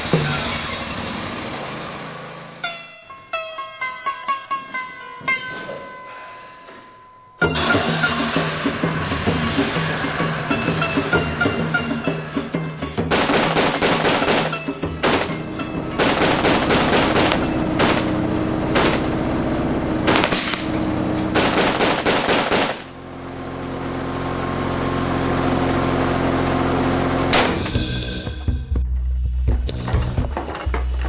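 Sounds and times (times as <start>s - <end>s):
machine-gun fire: 13.1s - 19.2s, 20.1s - 20.7s, 21.4s - 23.0s.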